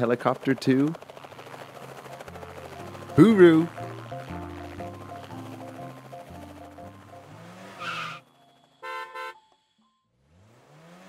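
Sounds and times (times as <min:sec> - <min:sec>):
rising whine: 0:00.4 - 0:08.8
tyre screech effect: 0:07.6 - 0:08.2
car horn toots: 0:08.8 - 0:09.6.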